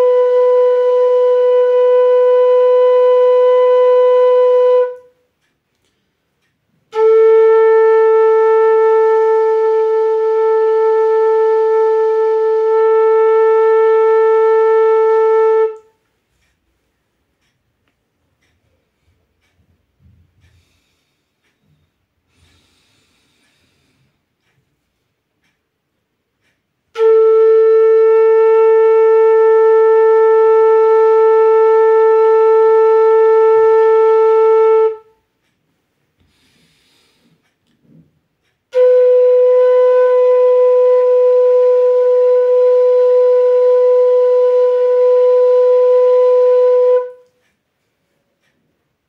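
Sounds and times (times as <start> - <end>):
bamboo flute long notes: 0.0 - 5.3, 6.8 - 16.5, 26.9 - 35.3, 38.7 - 47.6.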